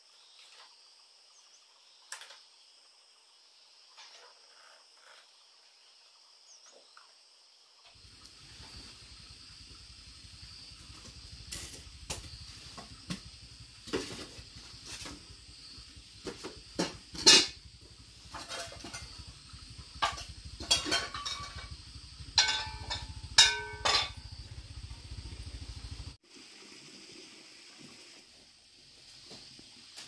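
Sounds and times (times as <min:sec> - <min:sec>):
metal pots and utensils clanking: 0:16.3 - 0:17.6, 0:18.2 - 0:19.3, 0:20.0 - 0:24.2.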